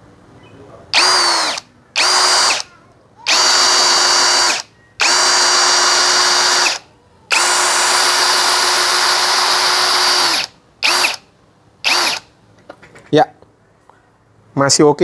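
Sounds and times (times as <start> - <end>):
cordless drill motor whine: 1.0 - 2.7, 3.3 - 12.3.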